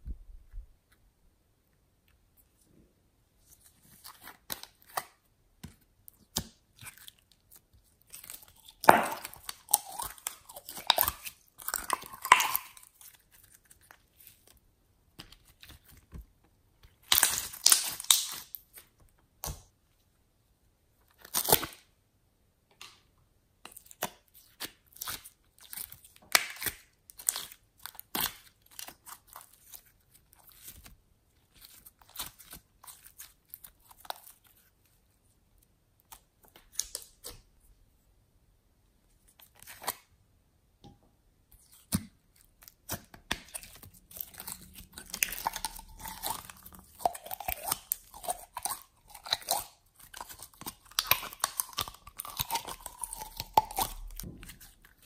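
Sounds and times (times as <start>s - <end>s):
hands squishing slime: 3.4s - 19.7s, 23.6s - 35.3s, 41.5s - 55.0s.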